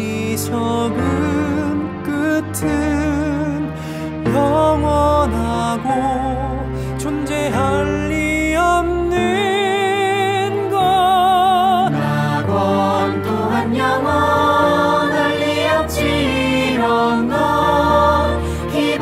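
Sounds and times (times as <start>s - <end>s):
musical accompaniment: 0.0s - 19.0s.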